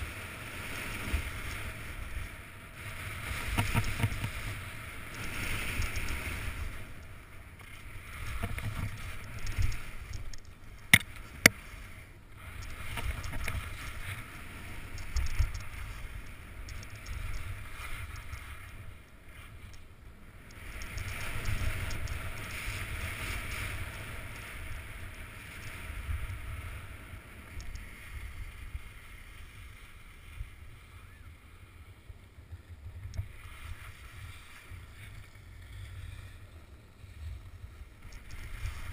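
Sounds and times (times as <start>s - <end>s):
skis scraping over snow: 0.0s - 38.9s
wind rumble on microphone: 0.0s - 38.9s
sharp clicks: 20.4s - 22.2s.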